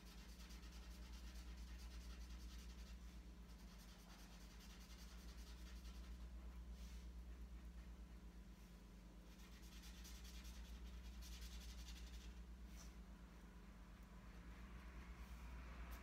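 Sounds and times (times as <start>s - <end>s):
marker pen rubbing on paper: 0.0s - 8.0s, 9.3s - 13.0s
steady low hum: 0.0s - 16.0s.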